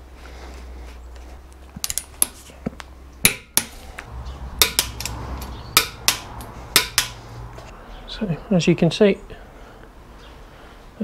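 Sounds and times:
hand tools clinking on steel: 4.6 - 7.2.

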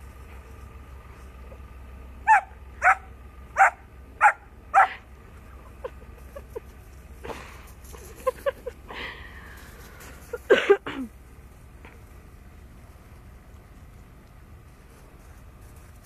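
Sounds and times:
puppy barking: 2.2 - 5.0.

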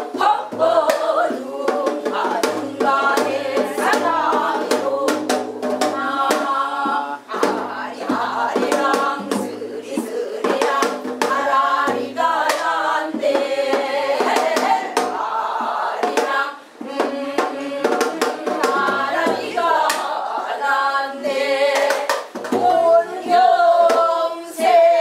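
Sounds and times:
women singing folk song: 0.0 - 25.0
hand claps: 21.8 - 22.4.

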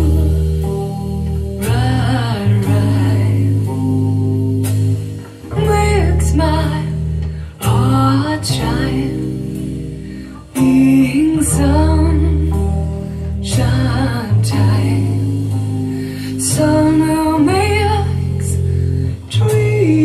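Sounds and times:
person singing: 0.0 - 4.4, 5.4 - 20.0
plucked guitar: 0.0 - 20.0
sustained bass notes: 0.0 - 20.0.

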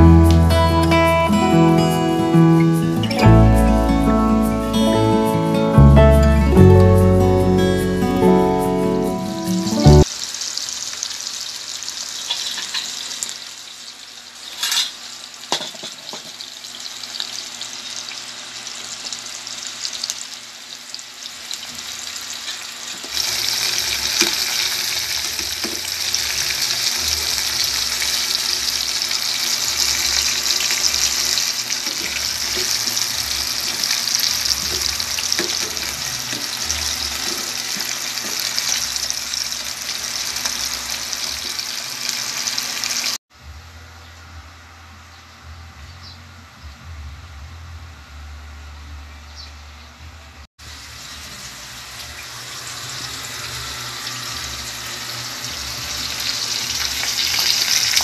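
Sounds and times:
chicken frying in oil: 9.6 - 43.2, 50.6 - 58.0.

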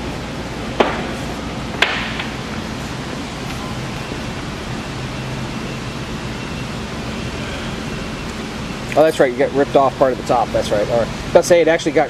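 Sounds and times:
workshop hiss and hum: 0.0 - 12.0
sharp knock: 0.8 - 1.1, 1.8 - 2.3.

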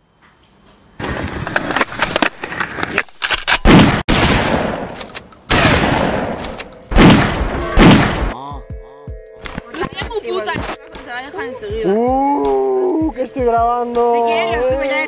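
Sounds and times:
heavy hits with decaying tails: 3.7 - 4.8, 5.5 - 8.4.

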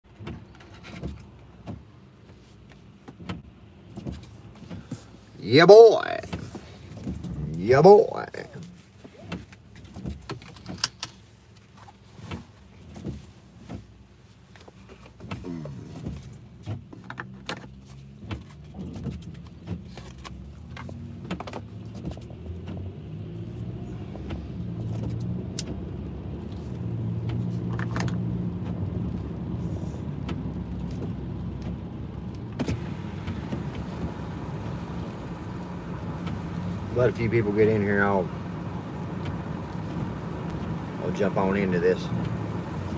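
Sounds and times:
clicks and knocks in car cabin: 0.1 - 5.2, 6.1 - 7.5, 8.6 - 23.0, 24.0 - 29.2
car engine humming: 0.1 - 42.9.

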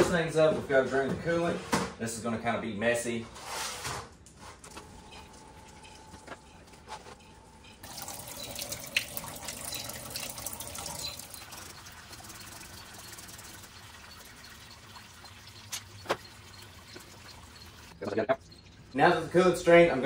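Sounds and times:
coolant pouring into drain pan: 7.8 - 19.4.

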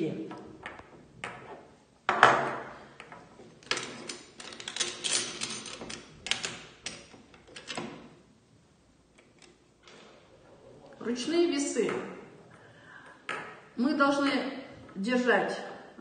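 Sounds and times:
metal weights clicking and rattling: 2.9 - 8.1.

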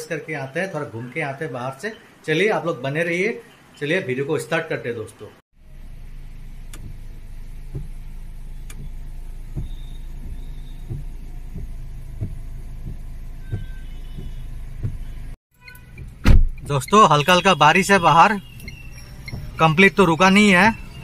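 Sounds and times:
car engine idling: 5.6 - 21.0
windscreen wipers thumping: 5.7 - 21.0.

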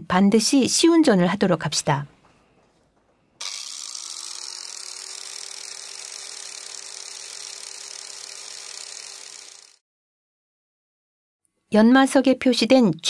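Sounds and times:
angle grinder whining: 3.4 - 9.8.

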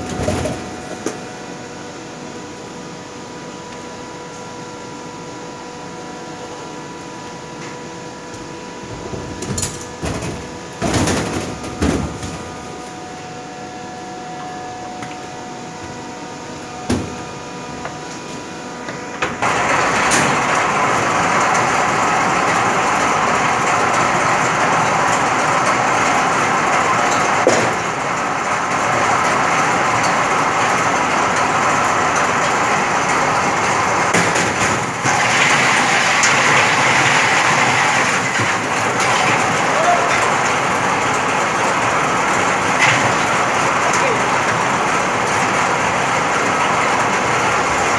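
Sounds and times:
machine hum: 0.0 - 47.9
ice crusher crushing ice: 34.4 - 40.5.

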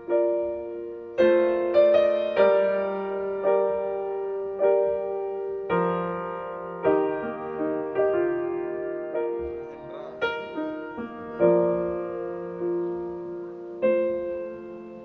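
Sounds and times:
slow solo piano music: 0.0 - 15.0.

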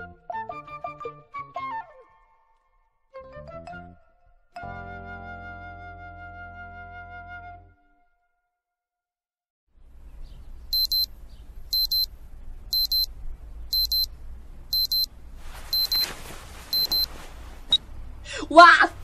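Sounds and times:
low steady hum: 9.8 - 19.0
alarm clock beeping: 10.8 - 11.1, 11.7 - 12.1, 12.7 - 13.1, 13.7 - 14.1, 14.7 - 15.1, 15.8 - 16.0, 16.8 - 17.1
rustling: 14.9 - 18.2.

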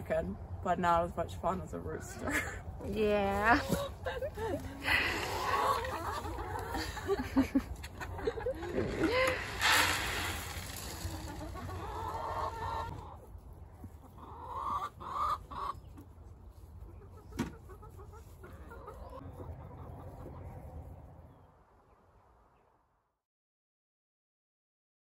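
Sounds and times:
hens clucking: 3.5 - 21.4.

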